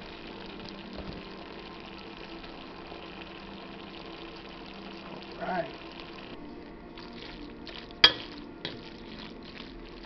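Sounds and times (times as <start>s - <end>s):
sauce bubbling in a pot: 0.0s - 10.0s.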